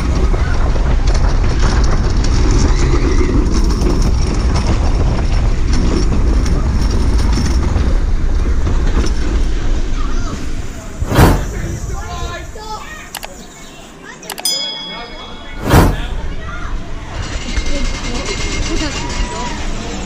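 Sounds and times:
roller coaster running on track: 0.0 - 13.3, 14.1 - 20.0
wind noise on microphone: 15.6 - 16.4.

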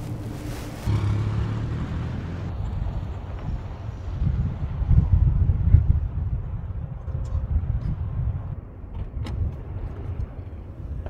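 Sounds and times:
wind rumble: 0.0 - 11.0.

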